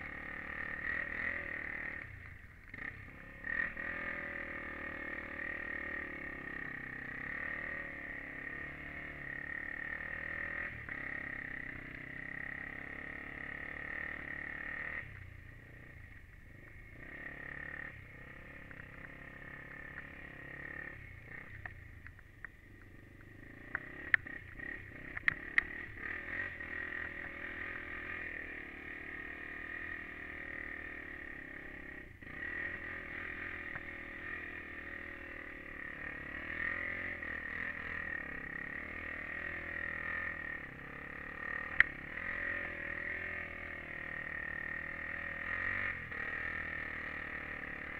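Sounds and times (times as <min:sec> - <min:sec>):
quad engine running: 0:00.0 - 0:47.9
sharp clicks: 0:23.6 - 0:24.3.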